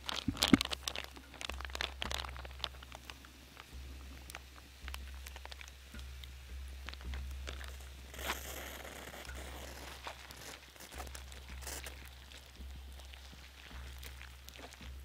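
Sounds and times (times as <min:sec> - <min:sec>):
campfire crackling: 0:00.0 - 0:15.0
rustling scrape: 0:08.1 - 0:12.0.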